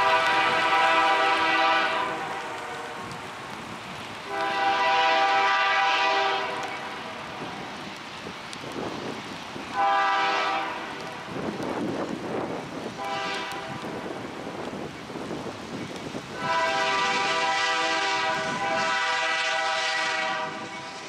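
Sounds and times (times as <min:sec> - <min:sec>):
locomotive air horn blasts: 0:00.0 - 0:03.1, 0:04.3 - 0:06.7, 0:09.8 - 0:11.0, 0:13.0 - 0:13.9, 0:16.4 - 0:21.0
train rumble: 0:00.0 - 0:21.0.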